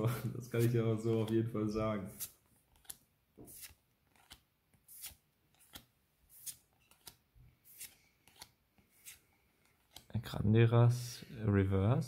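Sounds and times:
trading cards sliding and flicking: 0.5s - 10.1s.

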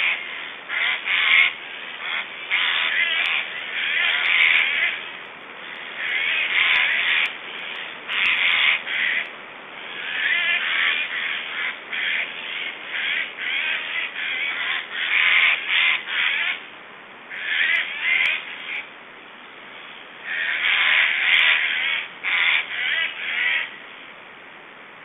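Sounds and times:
stork nestlings calling: 5.6s - 9.3s, 9.9s - 16.6s, 17.3s - 18.8s, 20.3s - 23.7s.

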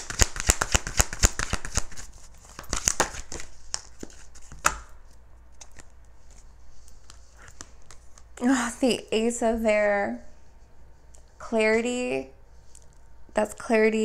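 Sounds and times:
cards clicking while shuffled: 0.0s - 4.9s.

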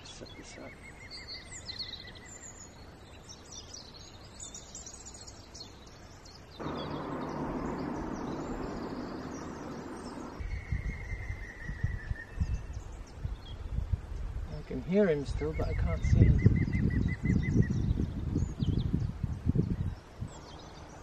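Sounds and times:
small birds chirping: 0.0s - 13.7s, 14.5s - 21.0s
steady rushing noise: 6.6s - 10.4s.

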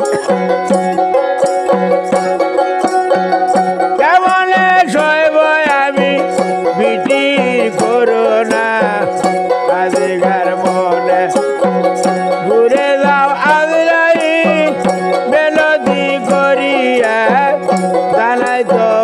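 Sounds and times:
frame drum beat: 0.0s - 19.0s
plucked string melody: 0.0s - 19.0s
man singing: 3.8s - 19.0s.

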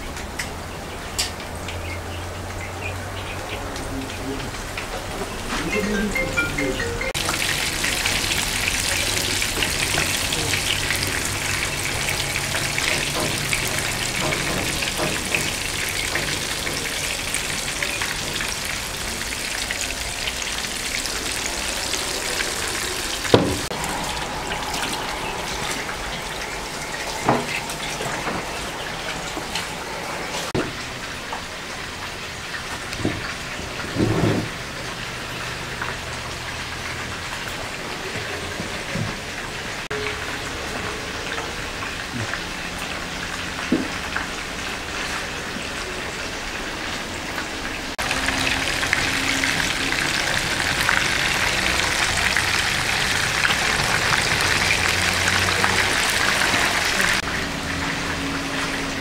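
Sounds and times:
meatballs sizzling in oil: 7.2s - 28.0s.

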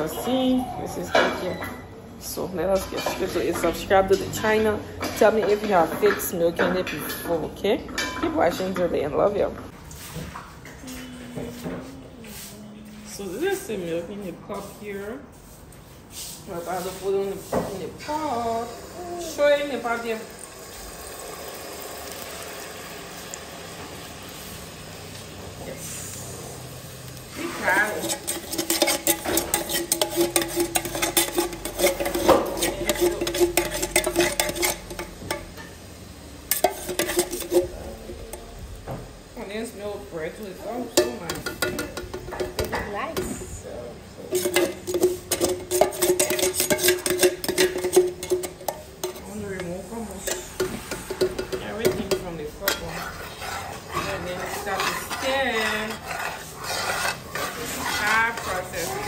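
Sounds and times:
hot oil crackling and popping: 18.0s - 42.9s, 44.2s - 59.0s
metal spoon scraping pot: 27.3s - 35.7s, 36.5s - 37.8s, 40.9s - 42.8s, 44.2s - 59.0s.

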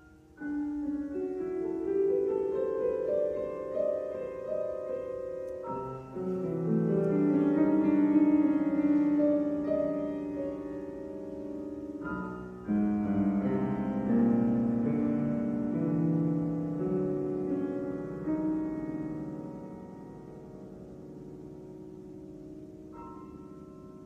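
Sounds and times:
grand piano playing slow solo: 0.0s - 24.0s.

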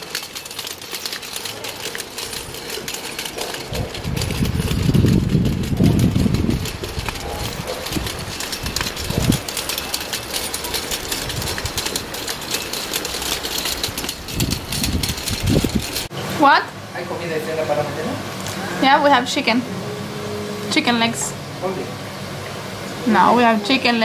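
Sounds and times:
toy stroller wheels rattling on bricks: 0.0s - 16.1s.

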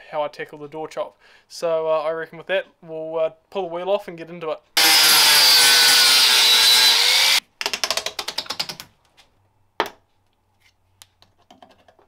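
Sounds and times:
angle grinder cutting metal: 4.8s - 7.4s.

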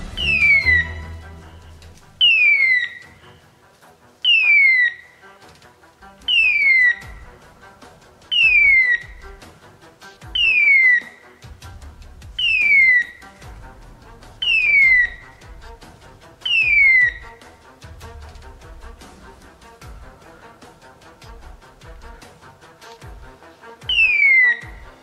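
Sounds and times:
beeper collar whistle cry: 0.1s - 1.2s, 2.2s - 3.3s, 4.2s - 5.1s, 6.2s - 7.2s, 8.3s - 9.3s, 10.3s - 11.3s, 12.4s - 13.4s, 14.4s - 15.4s, 16.4s - 17.4s, 23.9s - 25.0s.

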